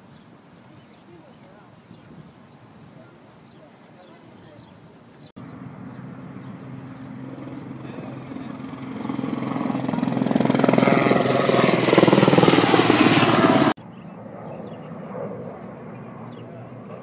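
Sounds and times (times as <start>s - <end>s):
helicopter rotor beat: 5.4s - 17.0s.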